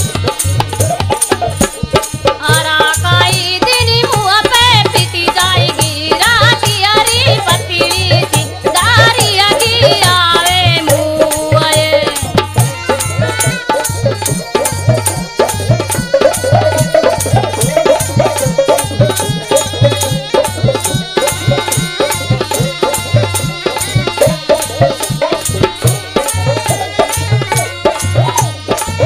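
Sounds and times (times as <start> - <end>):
fast hand-drum beat: 0.0 - 29.0
gourd pipe melody: 12.6 - 29.0.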